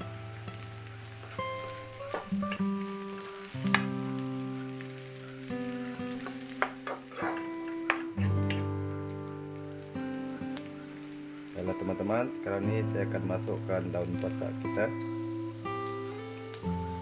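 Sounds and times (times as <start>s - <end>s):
onions sizzling in hot oil: 0.0s - 17.0s
metal spatula scraping a wok: 6.2s - 8.6s.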